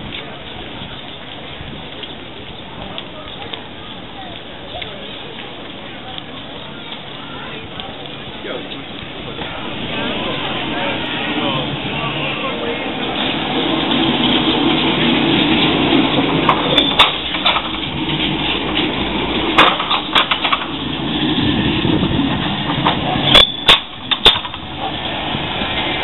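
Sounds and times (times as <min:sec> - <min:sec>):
tram wheels rumbling on rails: 0:00.0 - 0:26.0
sharp metallic clicks and knocks: 0:16.4 - 0:20.8, 0:22.7 - 0:24.7.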